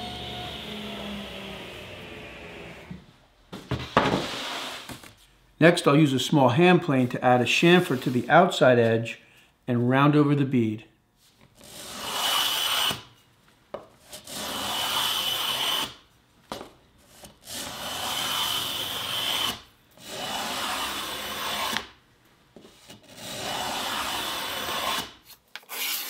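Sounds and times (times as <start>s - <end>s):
hand plane cutting wood: 0.0s - 3.0s, 11.6s - 13.0s, 14.0s - 16.0s, 17.1s - 21.9s, 22.7s - 26.0s.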